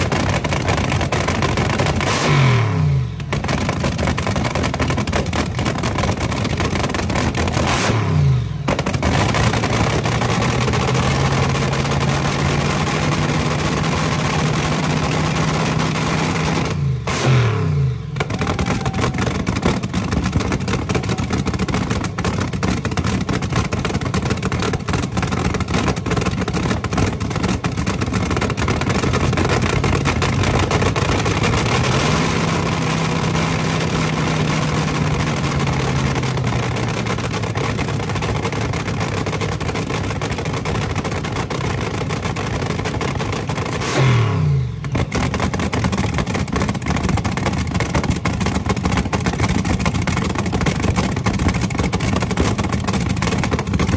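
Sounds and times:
dragster engine choppy idle: 0.0s - 2.4s, 3.0s - 7.7s, 8.4s - 17.3s, 18.0s - 44.0s, 44.8s - 53.9s
engine revving: 0.0s - 23.7s, 28.0s - 38.5s, 43.6s - 44.9s.

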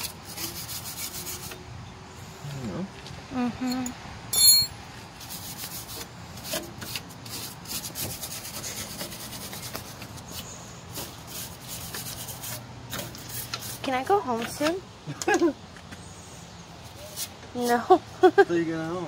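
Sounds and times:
brush scrubbing metal: 0.0s - 1.6s, 5.1s - 14.6s.

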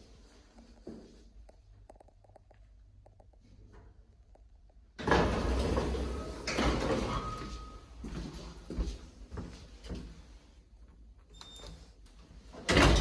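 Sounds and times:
sliding doors rumbling and rattling: 5.0s - 7.4s, 12.6s - 13.0s.

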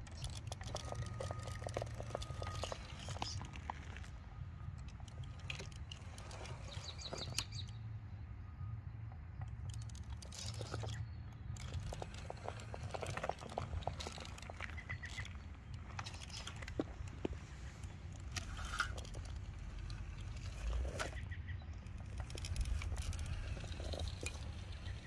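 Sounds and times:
bird chirping: 5.0s - 25.0s
tyres scraping on stone: 11.6s - 25.0s.

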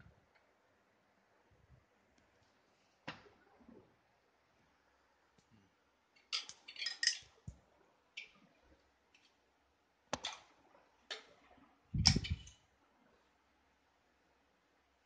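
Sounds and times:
metal clinks and knocks: 6.2s - 7.4s.

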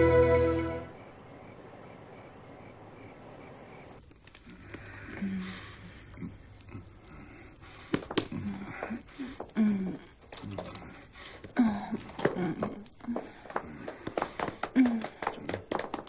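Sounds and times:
breathy sighs: 4.6s - 13.6s.

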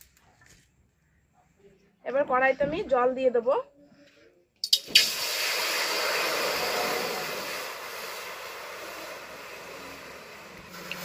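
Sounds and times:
water sizzling in hot pan: 4.6s - 11.0s.

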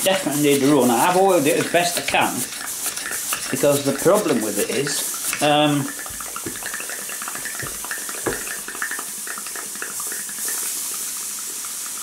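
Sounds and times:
steam engine chuffing: 0.0s - 8.9s
steam hissing: 0.0s - 12.0s.

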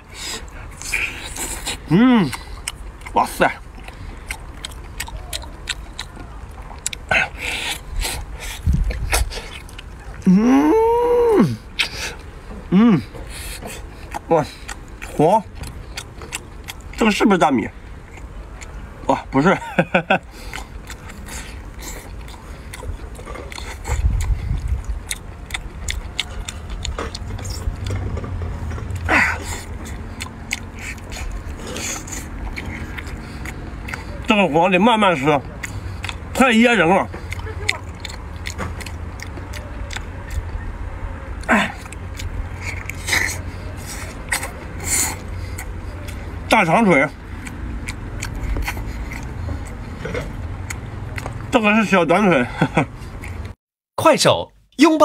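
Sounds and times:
wet chewing and sucking: 0.0s - 51.5s, 52.6s - 53.6s
breathy puffs: 28.7s - 34.2s.

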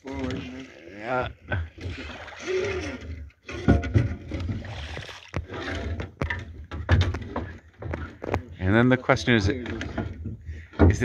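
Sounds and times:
oars in oarlocks and water: 0.0s - 11.0s
sharp wooden knocks: 3.5s - 8.5s, 9.5s - 11.0s.

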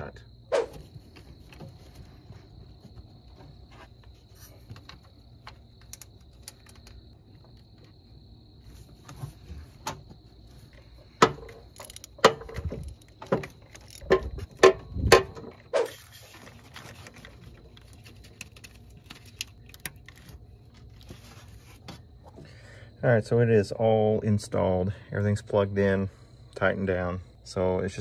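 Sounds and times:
metal clicks: 11.2s - 15.4s
metal knocking: 11.2s - 15.6s.

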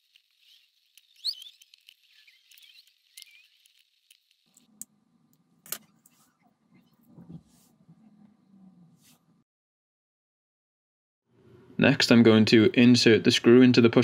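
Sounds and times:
screwdriver scratching and squeaking: 0.0s - 4.3s.

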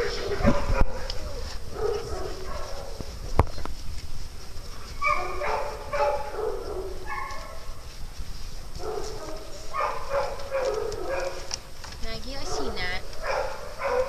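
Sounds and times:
dogs whining and yipping: 0.0s - 3.6s, 4.8s - 7.8s, 12.5s - 14.0s.

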